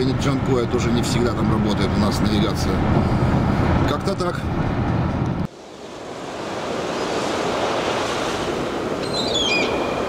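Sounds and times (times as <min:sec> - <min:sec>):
waves washing: 0:05.5 - 0:10.0.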